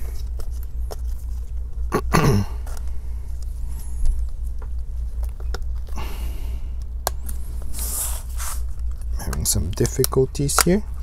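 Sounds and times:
steady low hum: 0.0 - 11.0
person coughing: 1.9 - 2.7.

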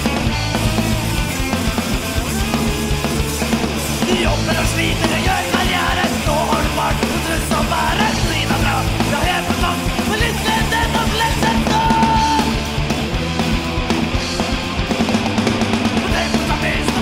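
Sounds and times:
punk rock band playing: 0.0 - 17.0
person singing: 4.0 - 12.6, 15.9 - 17.0.

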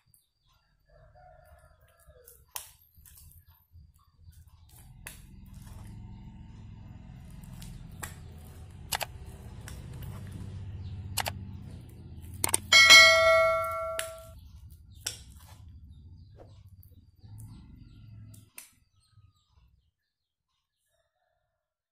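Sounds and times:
spoon tapping glass rim: 12.5 - 14.3
bell-like ring of glass dish: 12.7 - 14.3.

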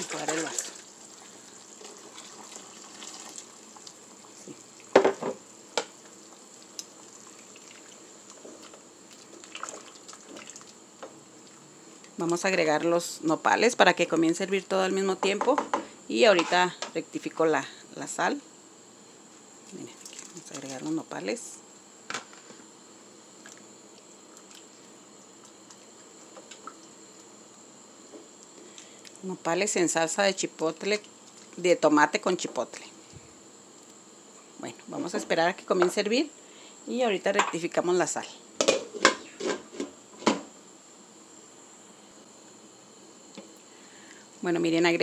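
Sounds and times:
water pouring: 0.0 - 4.0, 6.5 - 10.8, 19.7 - 20.9
pot simmering with low sizzle: 0.0 - 12.9, 18.5 - 32.2
knocks against a pot: 4.9 - 5.9, 38.6 - 40.5.

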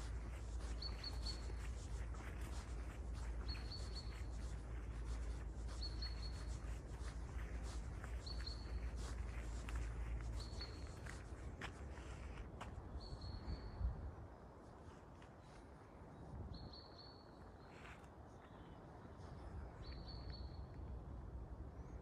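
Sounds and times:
steady low rumble: 0.0 - 12.4.

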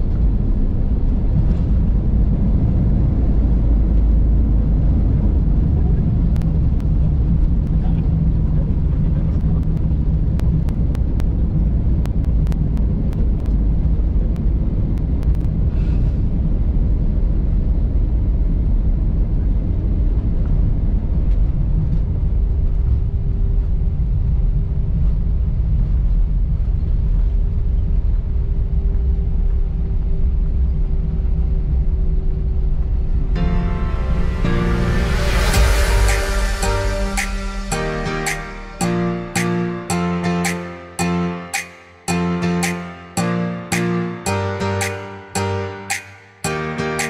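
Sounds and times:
jet engines rumbling in cabin: 0.0 - 33.8.

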